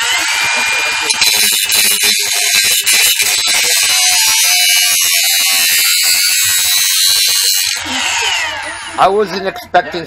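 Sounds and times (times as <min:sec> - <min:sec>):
angle grinder grinding steel: 0:00.0 - 0:09.2.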